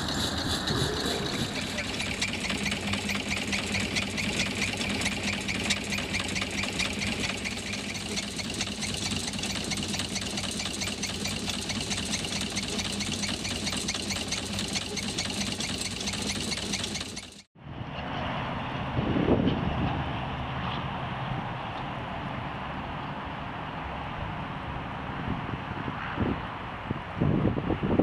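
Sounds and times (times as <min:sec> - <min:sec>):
steam engine running: 0:00.0 - 0:17.5.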